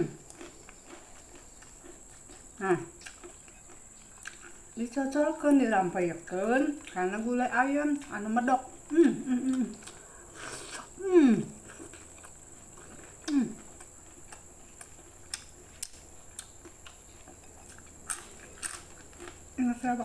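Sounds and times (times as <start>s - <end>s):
person chewing food: 0.0s - 4.8s, 6.8s - 7.0s, 8.7s - 19.6s
person humming mmm: 8.9s - 11.7s, 13.2s - 13.7s.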